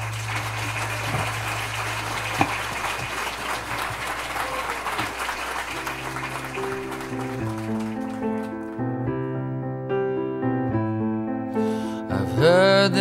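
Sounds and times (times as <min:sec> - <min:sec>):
people applauding: 0:00.0 - 0:08.9
held piano notes: 0:00.0 - 0:13.0.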